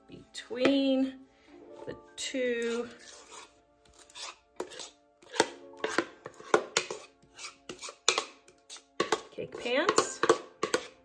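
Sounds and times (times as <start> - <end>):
soft background music: 0.0 - 11.0
spatula scraping batter: 2.3 - 11.0.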